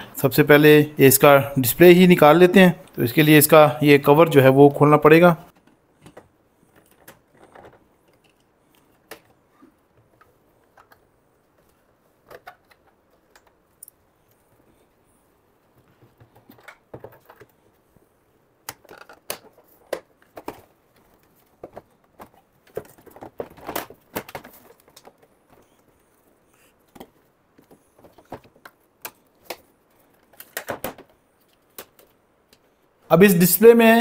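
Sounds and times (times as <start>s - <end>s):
plastic cover clicks and snaps: 18.6s - 20.7s, 28.1s - 32.6s.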